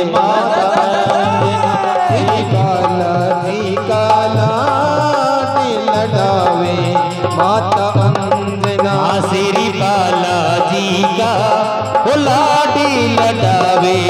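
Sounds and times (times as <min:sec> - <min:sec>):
dholak drumming folk rhythm: 0:00.0 - 0:14.0
harmonium melody: 0:00.0 - 0:14.0.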